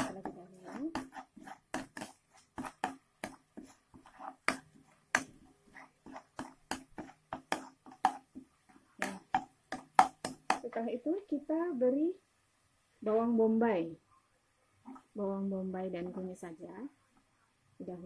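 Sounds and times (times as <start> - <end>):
metal spatula scraping a wok: 0.0 - 8.2.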